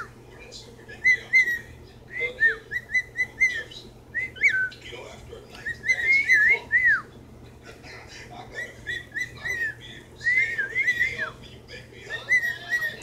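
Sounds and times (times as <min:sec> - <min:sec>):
cockatiel whistling: 0:01.0 - 0:04.8, 0:05.6 - 0:07.1, 0:08.6 - 0:11.4, 0:12.1 - 0:13.0.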